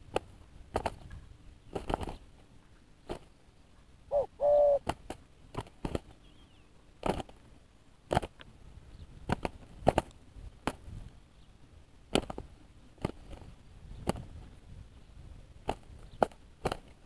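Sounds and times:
wings slapping: 0:00.0 - 0:02.3, 0:03.0 - 0:03.3, 0:04.4 - 0:06.2, 0:07.0 - 0:07.4, 0:08.1 - 0:08.4, 0:09.2 - 0:10.9, 0:12.1 - 0:14.3, 0:15.6 - 0:17.0.

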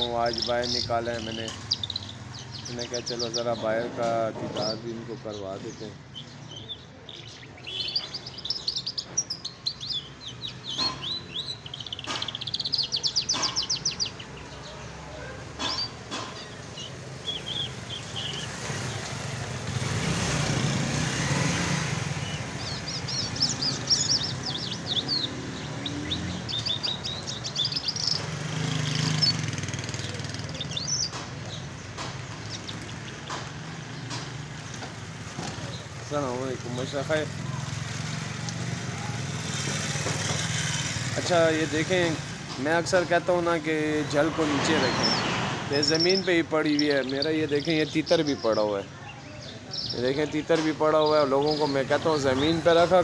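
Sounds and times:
lark singing trills and chirps: 0:00.0 - 0:53.0
passing vehicle rumbling: 0:09.9 - 0:48.3, 0:49.6 - 0:53.0.

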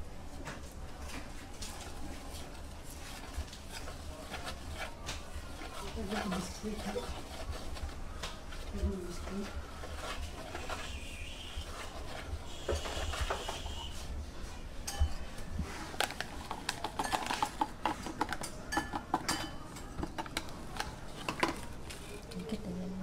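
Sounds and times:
metal utensils clinking on dishes: 0:14.8 - 0:15.4, 0:16.6 - 0:21.7.

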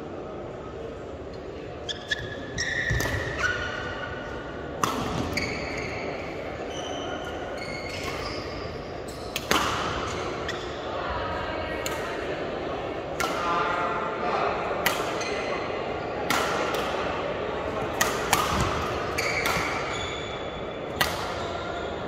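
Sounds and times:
shoes squeaking on court floor: 0:01.8 - 0:04.0, 0:05.0 - 0:10.9, 0:18.6 - 0:22.0
rackets striking shuttlecock: 0:04.8 - 0:05.9, 0:09.3 - 0:10.5, 0:13.1 - 0:13.6, 0:14.8 - 0:15.5, 0:16.2 - 0:17.1, 0:17.9 - 0:21.5.

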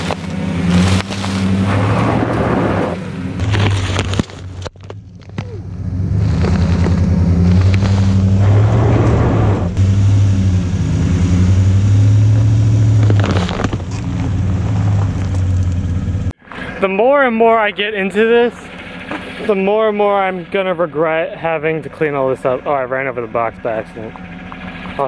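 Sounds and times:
tyres crunching on gravel: 0:00.0 - 0:09.8, 0:12.2 - 0:17.5
truck engine running at low revs: 0:00.0 - 0:25.0.

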